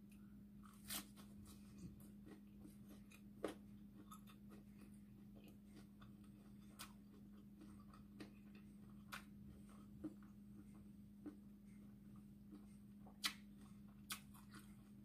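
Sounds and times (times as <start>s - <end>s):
soft chewing clicks: 1.7s - 15.0s.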